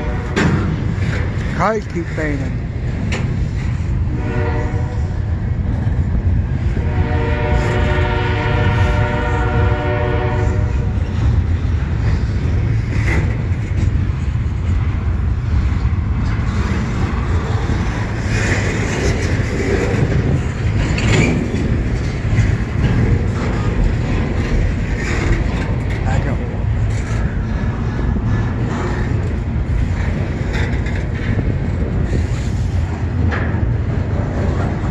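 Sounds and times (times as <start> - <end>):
train wheels rumbling on rail: 0.0 - 34.9
locomotive horn blast: 4.1 - 5.1, 6.8 - 10.9.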